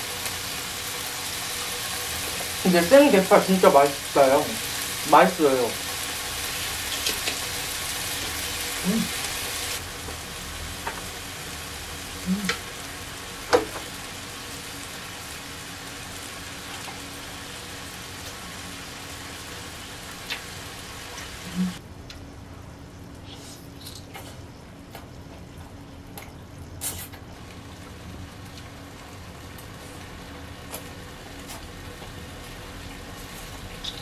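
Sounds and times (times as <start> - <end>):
steaks sizzling on grill: 0.0 - 21.6.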